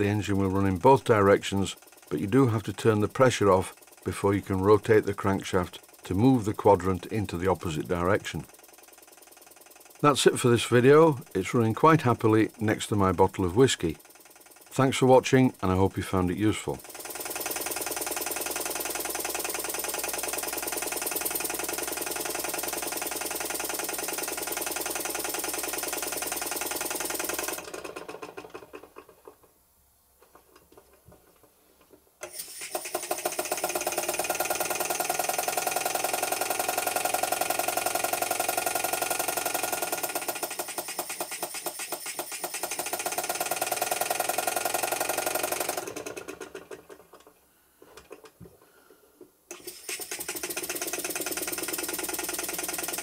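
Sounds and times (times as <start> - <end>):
toy steam engine running: 0.0 - 28.9, 32.2 - 47.0, 49.5 - 53.0.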